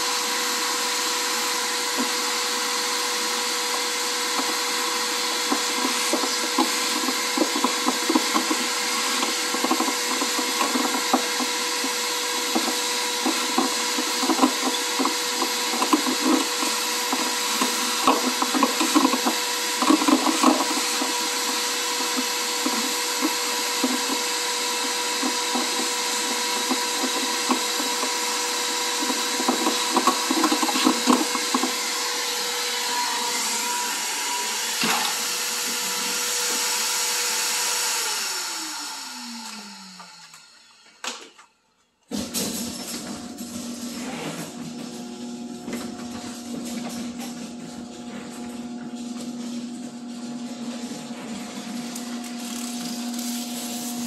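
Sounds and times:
vacuum cleaner running: 0.0 - 41.5, 42.1 - 54.0
grit rattling through vacuum nozzle: 4.3 - 32.0.

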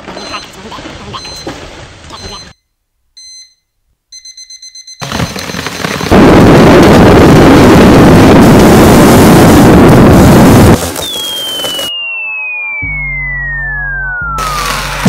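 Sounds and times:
high-pitched electronic beeping: 0.2 - 0.6, 1.2 - 1.5, 2.1 - 2.6, 11.8 - 15.0.

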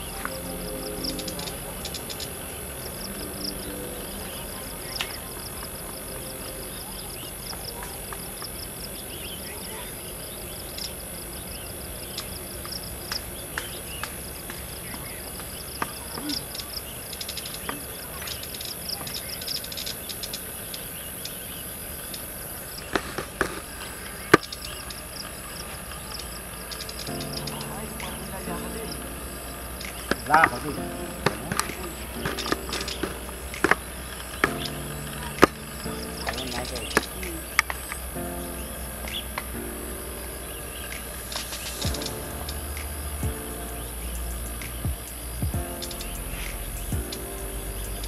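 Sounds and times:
repeating high chirp: 0.0 - 8.2
low outdoor rumble: 0.0 - 9.6, 25.0 - 48.0
insects droning: 0.0 - 48.0.

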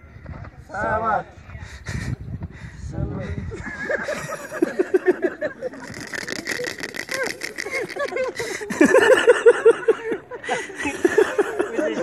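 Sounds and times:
people laughing hard: 3.5 - 12.0
rapid rattling noise: 4.2 - 9.0.

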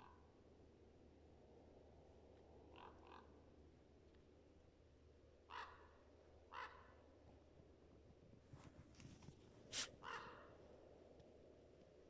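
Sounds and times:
crow cawing: 5.5 - 5.9, 6.5 - 6.9, 10.0 - 10.5.

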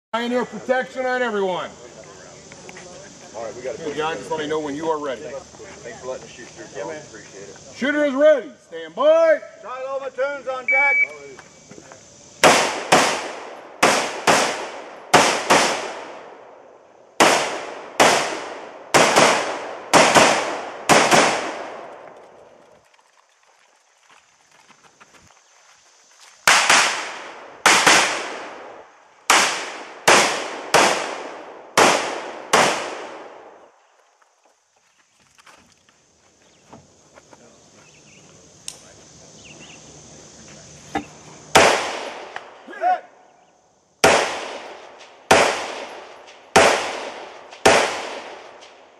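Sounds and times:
gunshots with echo: 12.4 - 16.2, 17.2 - 21.9, 29.3 - 33.4, 44.0 - 48.8
sharp thin crack: 26.5 - 28.6, 38.6 - 38.9.

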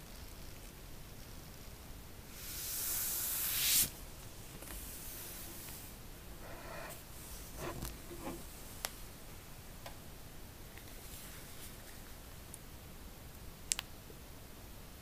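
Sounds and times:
loud hiss: 2.3 - 4.1, 4.7 - 8.5
smartphones sliding on desk: 6.4 - 8.6.

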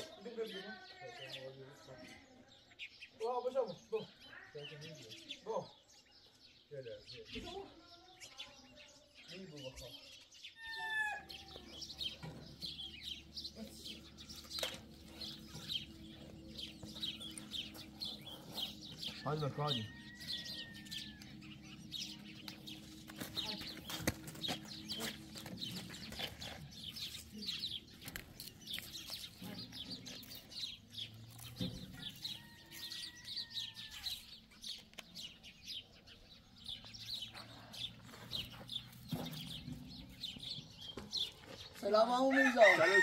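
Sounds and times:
small birds chirping: 0.0 - 43.0
rooster crowing: 19.4 - 21.5, 32.2 - 34.2, 42.3 - 43.0.

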